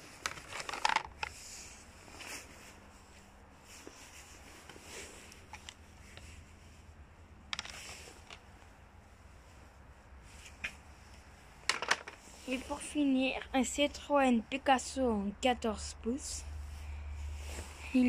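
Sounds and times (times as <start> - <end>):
plastic hubcap handled: 0.1 - 1.4.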